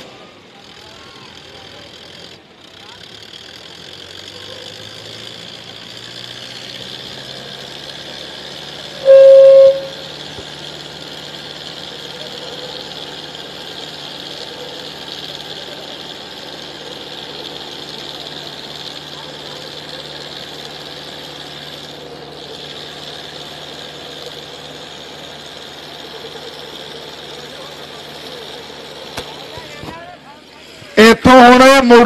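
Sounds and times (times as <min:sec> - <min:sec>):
tractor diesel engines working hard: 0:00.0 - 0:32.0
loud horn blast: 0:09.0 - 0:10.1.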